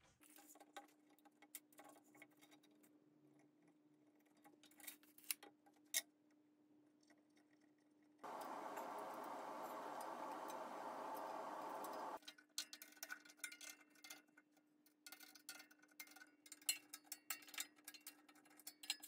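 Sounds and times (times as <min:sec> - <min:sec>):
steady rushing noise: 0:08.3 - 0:12.2.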